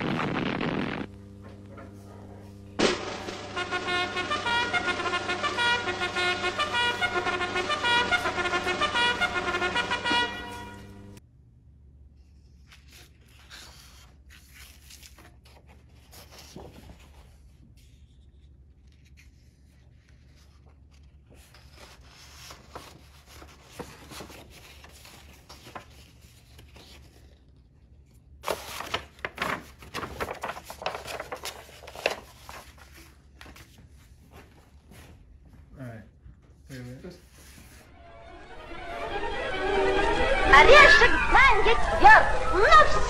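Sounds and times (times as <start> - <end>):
paper rustling and crinkling: 12.6 - 35.1.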